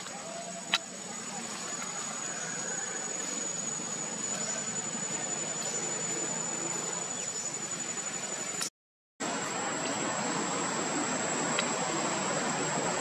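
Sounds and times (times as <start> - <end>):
insects trilling: 0.0 - 8.7.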